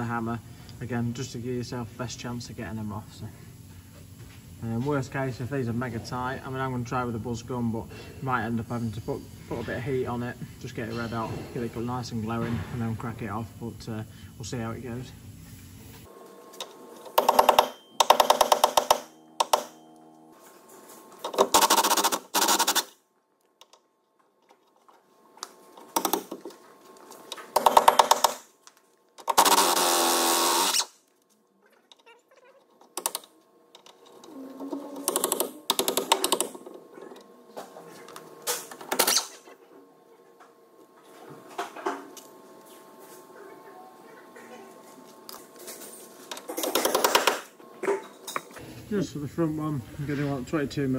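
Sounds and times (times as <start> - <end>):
air impact wrench hammering: 17.1 - 19.8, 27.5 - 28.5, 29.2 - 31.0.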